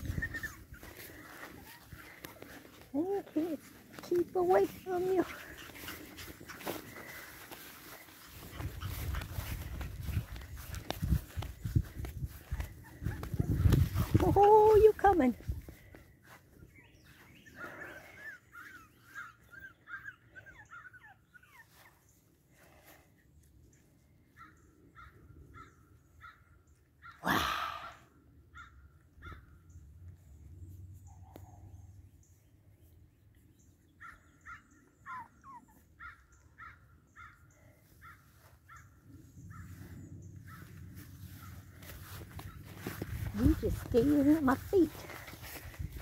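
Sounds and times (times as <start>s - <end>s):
puppies whining and whimpering: 0.0s - 2.1s, 18.1s - 22.1s, 35.0s - 36.0s.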